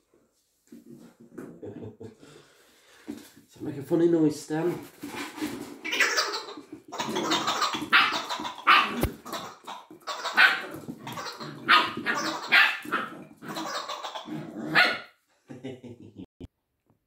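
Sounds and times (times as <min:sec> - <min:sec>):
puppy barking: 0:07.0 - 0:15.1.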